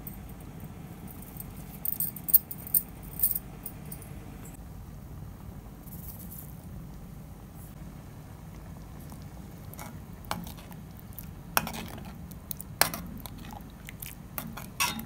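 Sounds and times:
low steady hum: 0.0 - 15.0
light clinks and jingles: 1.1 - 4.6.

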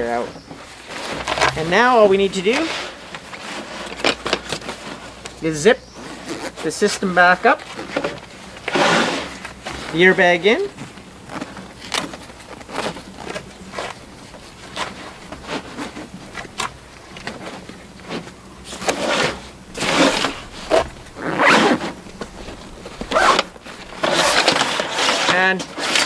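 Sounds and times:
zipper being pulled shut: 18.8 - 26.0.

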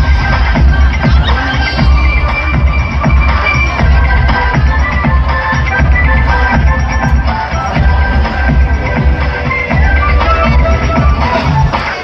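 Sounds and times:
dance music with pulsing bass: 0.0 - 12.0.

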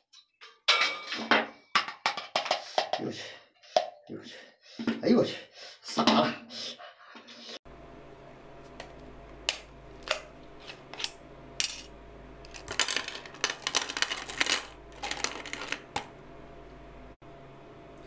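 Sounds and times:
snail shells clattering on plastic: 12.5 - 16.1.

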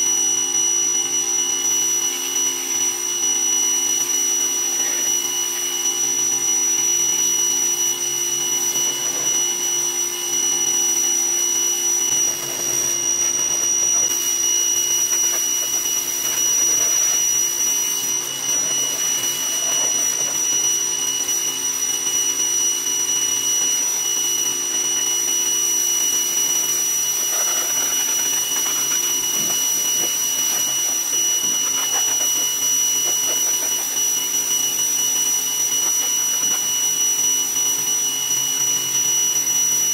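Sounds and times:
pressure washer whining: 0.0 - 39.9
water jet hissing: 12.1 - 21.5, 24.8 - 36.7.

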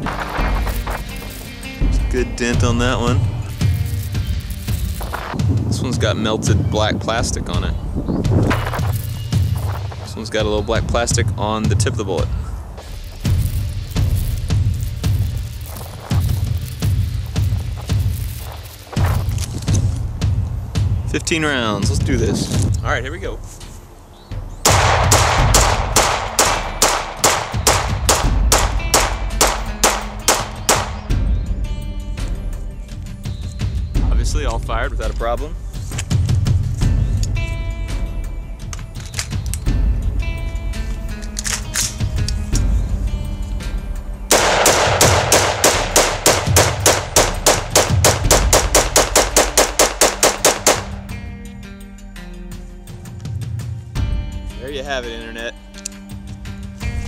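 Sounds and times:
pistol shots with echo: 24.7 - 31.1, 44.3 - 51.0.

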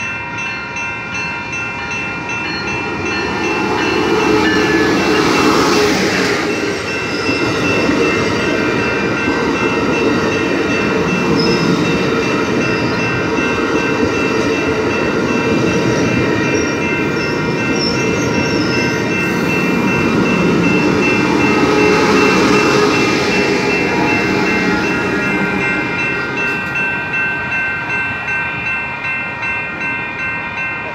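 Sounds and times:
crossing warning bells ringing: 0.0 - 30.9
diesel locomotive: 0.0 - 30.9
train wheels rumbling on rails: 0.0 - 30.9
wheel squeals: 11.3 - 11.9.

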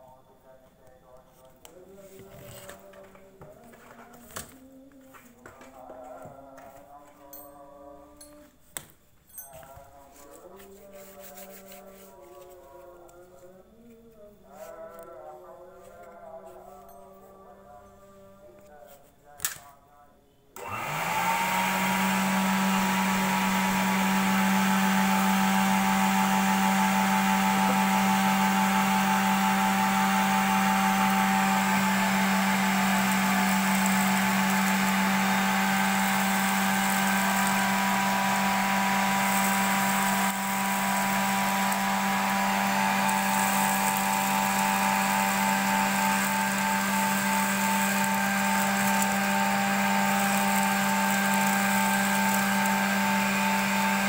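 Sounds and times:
vacuum motor humming and whining: 20.6 - 54.0.

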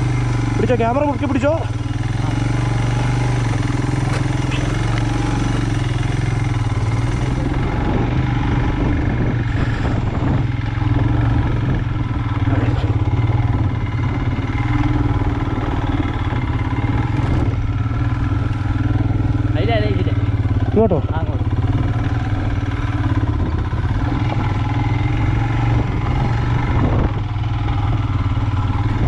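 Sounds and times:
motorcycle engine under load: 0.0 - 29.0.

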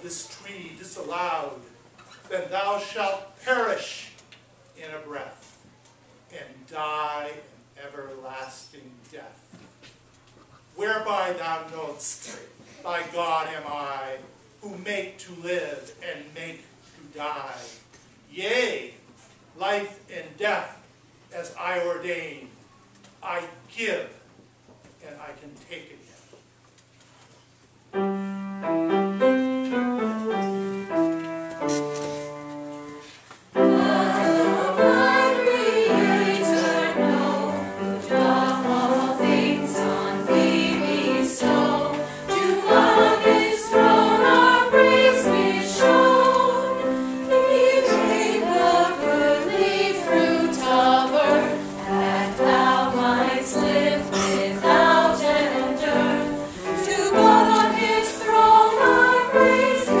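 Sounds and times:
piano notes: 27.9 - 60.0
choir singing a hymn: 32.3 - 60.0.

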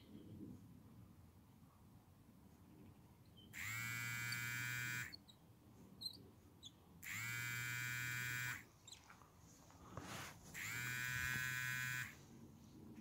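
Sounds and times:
fishing reel gear whine: 3.6 - 5.2, 10.6 - 12.1.

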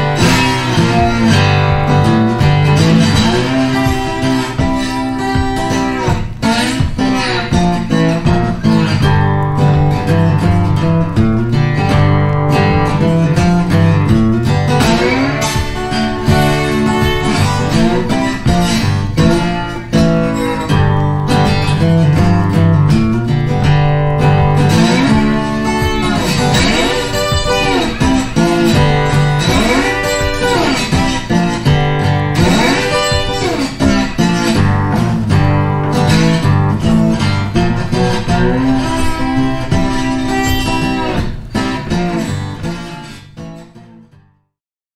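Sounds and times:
sliding guitar music: 0.0 - 44.5.

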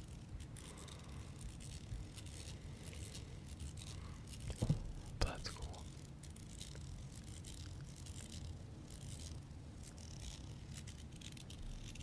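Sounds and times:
small clicks and rattling: 5.8 - 12.0.

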